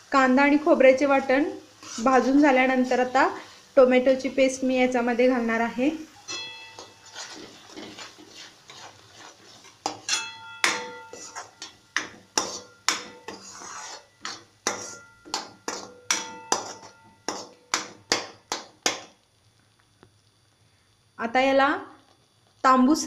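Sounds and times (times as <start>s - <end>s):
spoon scraping metal pan: 1.7s - 3.1s, 6.2s - 19.1s
spoon knocking pan with ring: 6.2s - 8.1s, 9.8s - 19.1s.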